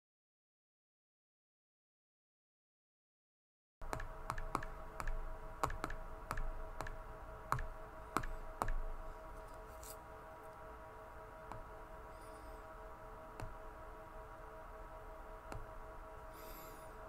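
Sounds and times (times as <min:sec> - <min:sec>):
stylus tapping on glass screen: 0:03.9 - 0:08.8.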